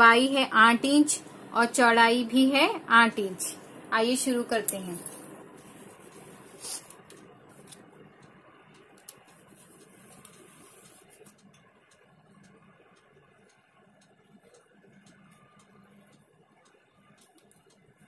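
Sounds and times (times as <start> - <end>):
cloth being folded: 4.8 - 7.8, 9.3 - 11.3.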